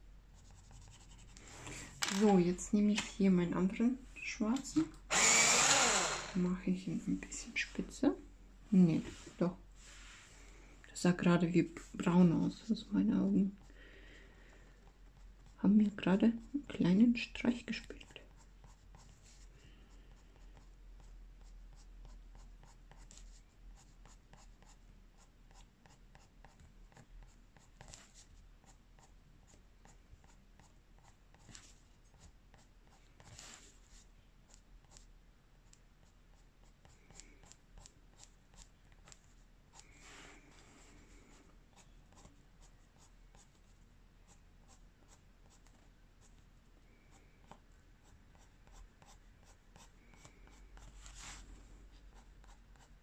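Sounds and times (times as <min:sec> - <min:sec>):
pencil scratching on paper: 0:00.4 - 0:01.4, 0:18.3 - 0:40.1, 0:41.3 - 0:43.7, 0:44.3 - 0:46.3, 0:47.2 - 0:51.4, 0:52.0 - 0:53.0.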